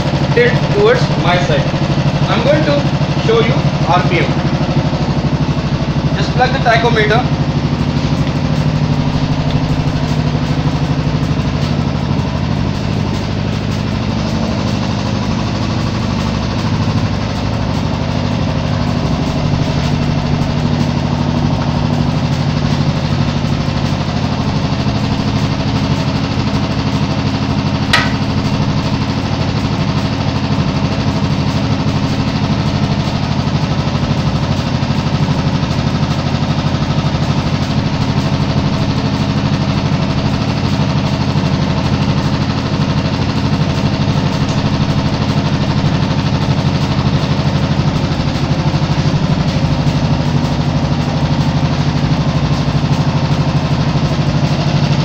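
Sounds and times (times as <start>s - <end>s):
motorcycle engine idling: 0.0s - 55.0s
sharp click: 27.9s - 28.4s.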